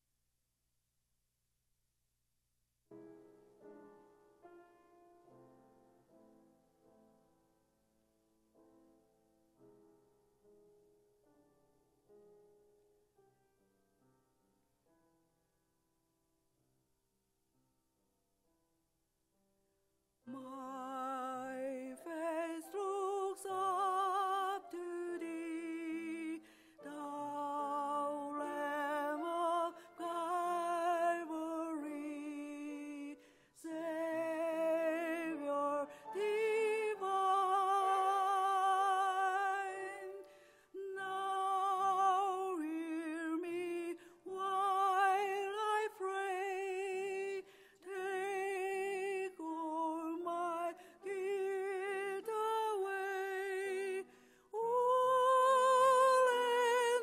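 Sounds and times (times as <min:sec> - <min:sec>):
woman singing with vibrato: 0:20.3 - 0:57.0
woman breathing: 0:26.4 - 0:26.8, 0:33.2 - 0:33.6, 0:40.2 - 0:40.8, 0:47.4 - 0:47.8, 0:54.1 - 0:54.6.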